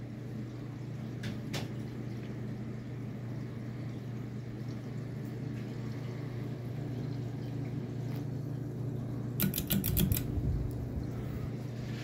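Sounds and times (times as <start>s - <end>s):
ceiling fan humming: 0.0s - 12.0s
fan pull chain clicks: 9.4s - 10.4s.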